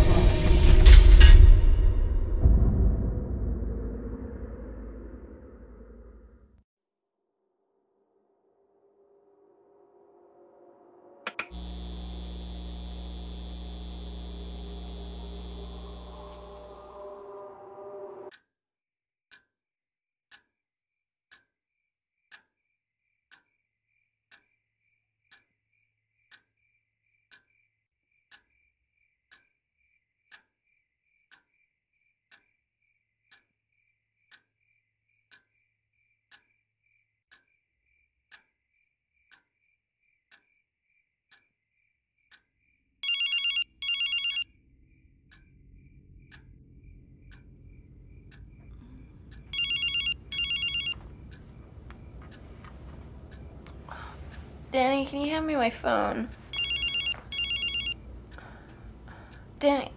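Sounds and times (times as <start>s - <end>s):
low hum: 0.0s - 6.4s, 9.5s - 18.3s, 44.7s - 59.9s
phone ringing: 43.0s - 44.5s, 49.5s - 53.0s, 55.0s - 58.1s
clock ticking: 46.3s - 46.5s, 47.2s - 59.9s.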